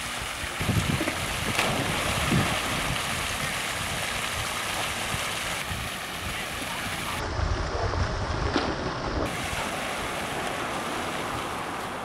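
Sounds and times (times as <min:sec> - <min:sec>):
rushing hiss of water and wind: 0:00.0 - 0:08.4, 0:09.2 - 0:12.0
dog splashing into water: 0:00.9 - 0:03.6.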